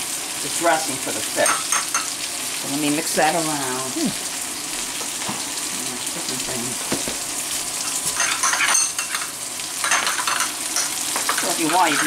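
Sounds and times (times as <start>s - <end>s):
fish sizzling in oil: 0.0s - 12.0s
spoon clinking in glass bowl: 1.4s - 2.1s, 7.8s - 12.0s.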